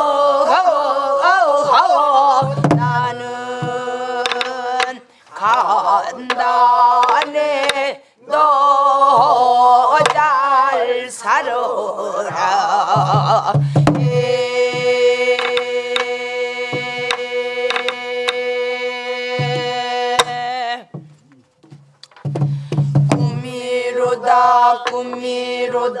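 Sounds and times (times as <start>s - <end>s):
group singing folk song: 0.0s - 21.1s, 22.1s - 26.0s
barrel drum strokes: 2.4s - 4.6s, 19.4s - 25.8s.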